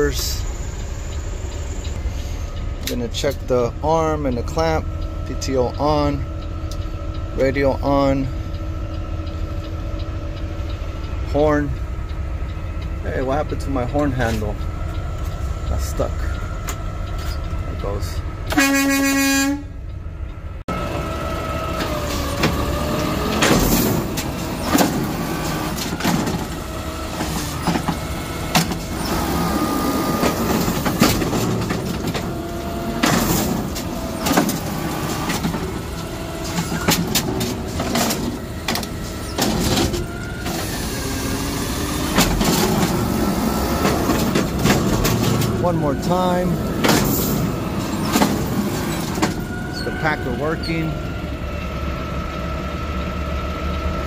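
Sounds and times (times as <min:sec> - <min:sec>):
diesel engine running: 0:00.0 - 0:54.0
hydraulic whine: 0:20.7 - 0:54.0
mechanical arm clanking: 0:20.8 - 0:51.0.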